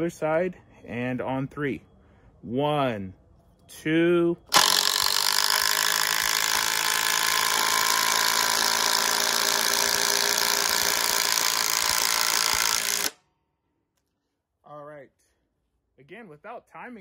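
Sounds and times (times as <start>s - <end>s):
impact driver hammering bolt into wood: 4.5s - 13.2s.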